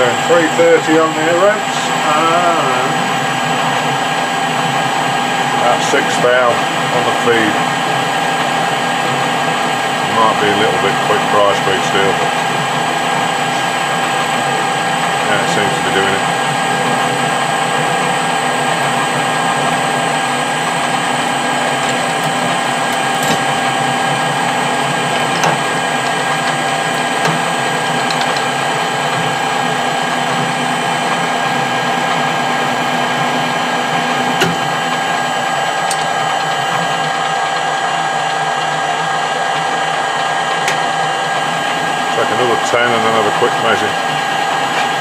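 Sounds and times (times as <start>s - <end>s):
metal lathe running with gear whine: 0.0s - 45.0s.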